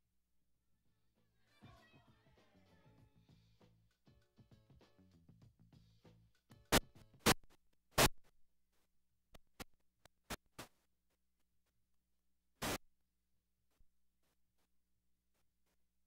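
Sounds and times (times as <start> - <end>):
short bursts of static noise: 6.7 - 8.3, 12.6 - 12.9.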